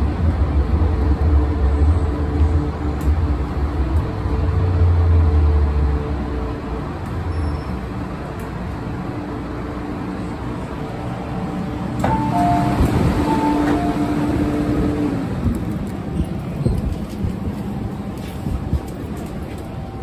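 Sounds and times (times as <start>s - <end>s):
train traction motors humming: 0.0s - 20.0s
two-tone door chime: 12.0s - 14.6s.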